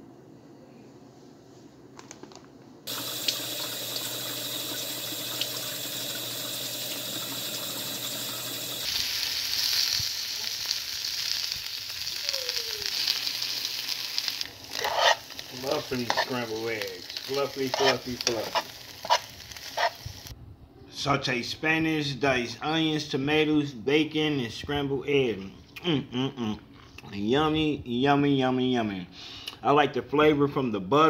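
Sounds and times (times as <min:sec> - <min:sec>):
tap water running into a bowl: 0:02.9 - 0:10.1
spinach sizzling in a frying pan: 0:02.9 - 0:20.3.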